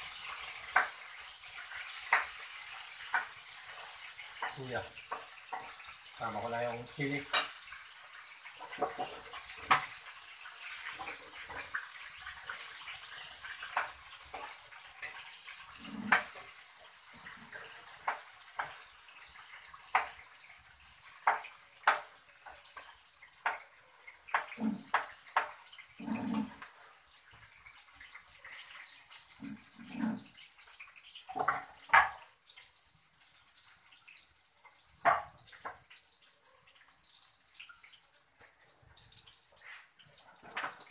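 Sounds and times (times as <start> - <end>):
utensils and cookware clanking: 0.0 - 32.3, 37.5 - 40.9
water running at a sink: 0.0 - 40.9
knocks on cutting board: 35.0 - 35.3.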